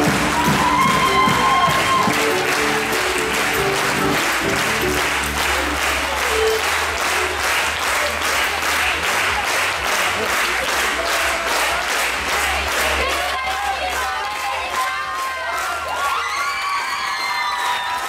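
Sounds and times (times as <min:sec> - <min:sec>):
live band music: 0:00.0 - 0:07.3
audience applauding: 0:00.0 - 0:18.0.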